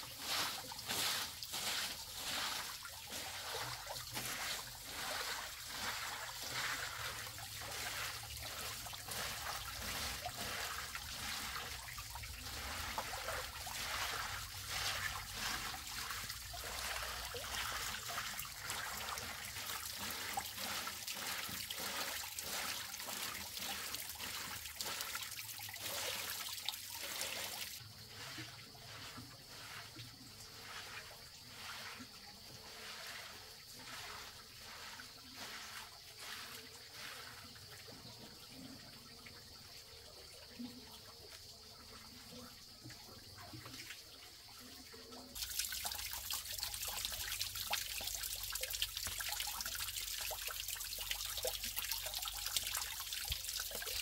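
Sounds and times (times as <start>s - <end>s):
water trickling and splashing: 0.0s - 54.0s.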